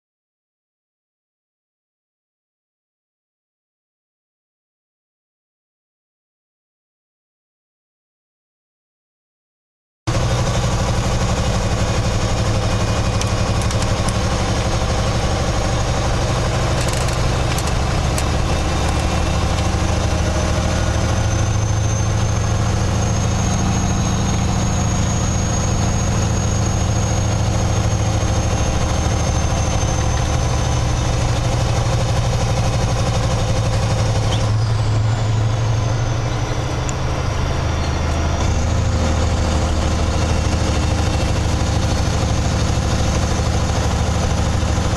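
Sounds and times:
diesel truck engine running: 10.1 - 44.9.

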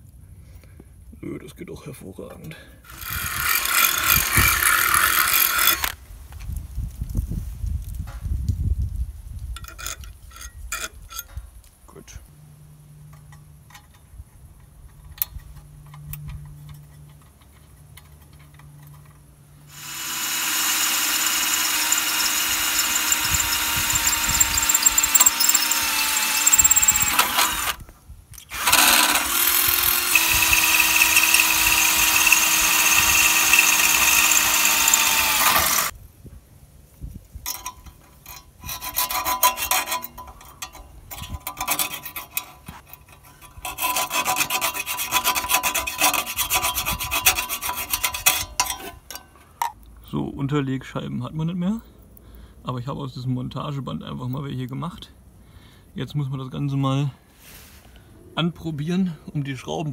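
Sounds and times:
cordless drill boring metal: 2.8 - 6.0, 19.7 - 27.8, 28.4 - 36.0, 37.5 - 49.2
metal parts clicking and scraping: 2.9 - 6.0, 9.6 - 11.5, 13.1 - 19.3, 21.2 - 27.8, 28.4 - 35.9, 37.4 - 49.8.

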